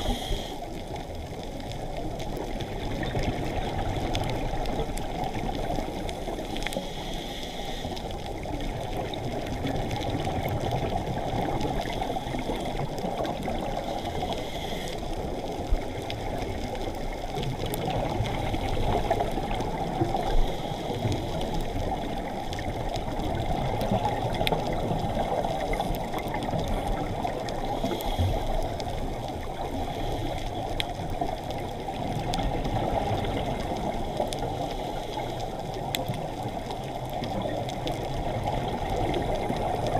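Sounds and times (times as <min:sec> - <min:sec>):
faint clicks underwater: 0:00.0 - 0:39.9
muffled underwater rush: 0:00.0 - 0:39.9.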